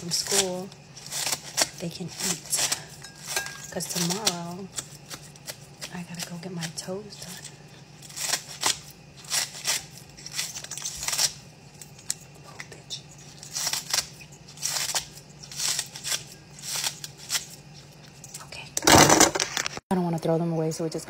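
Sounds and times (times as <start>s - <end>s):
scissors snipping green onions: 0.0s - 11.4s.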